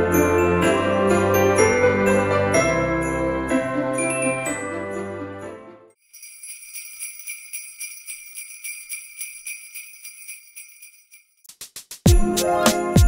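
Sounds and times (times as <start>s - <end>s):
music track: 0.0s - 6.0s, 12.1s - 13.0s
jingle bells shaken: 6.0s - 11.5s.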